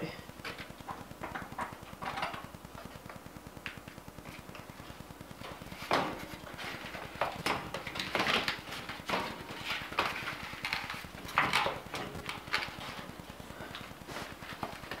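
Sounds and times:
air filter scraping vent: 0:04.2 - 0:15.0.

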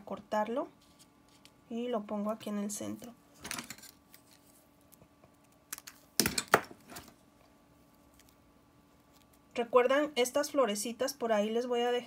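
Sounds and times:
paper rustling: 0:03.5 - 0:04.7.

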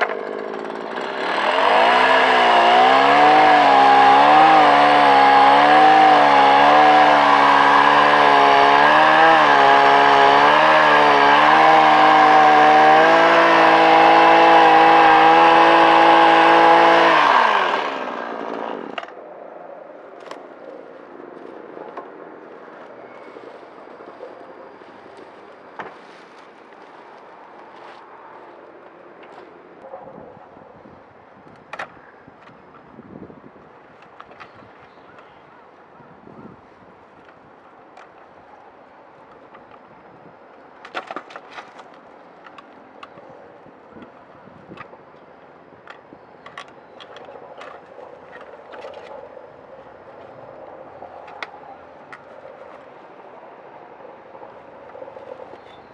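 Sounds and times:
steady outdoor noise: 0:00.0 - 0:55.9
dry straw rustling: 0:20.2 - 0:29.6.

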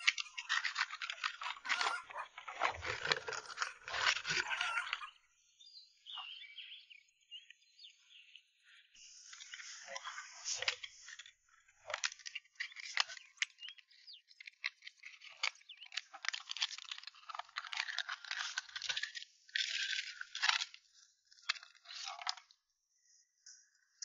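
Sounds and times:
knife scraping shells: 0:00.0 - 0:04.9
shells cracking and crunching: 0:00.0 - 0:05.1, 0:10.6 - 0:22.5.

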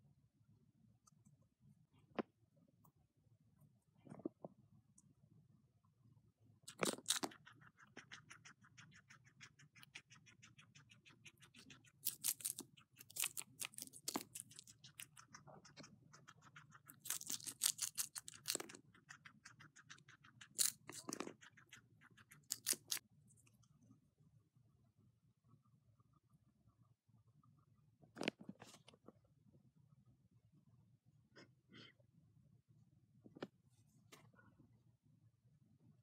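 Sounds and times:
guinea pig chewing lettuce: 0:06.6 - 0:23.1.

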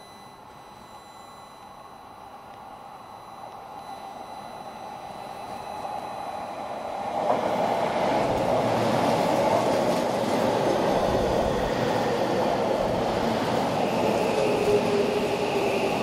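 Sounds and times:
electric train passing: 0:03.5 - 0:16.0.

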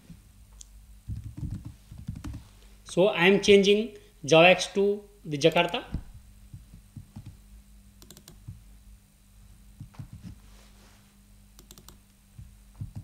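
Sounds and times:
typing on computer keyboard: 0:01.1 - 0:02.4, 0:11.6 - 0:12.0.

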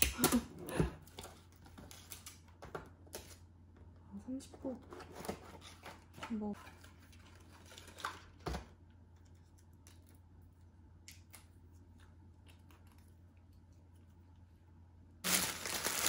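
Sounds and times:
low steady hum: 0:00.0 - 0:16.0
paper wrapping crinkling: 0:15.2 - 0:16.0.

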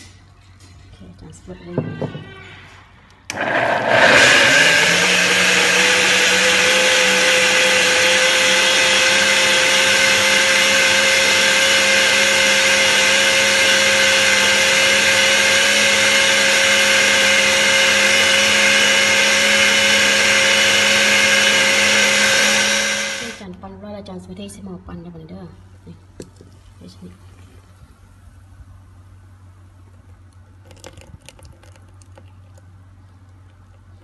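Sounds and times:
blender whining: 0:03.3 - 0:23.5.

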